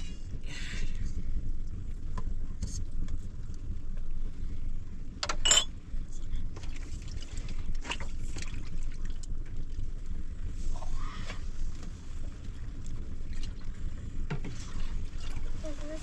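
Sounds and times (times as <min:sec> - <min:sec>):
wood fire crackling: 0:00.0 - 0:06.6, 0:07.2 - 0:16.0
steady low rumble: 0:00.0 - 0:16.0
metal dish clinking: 0:05.3 - 0:05.7.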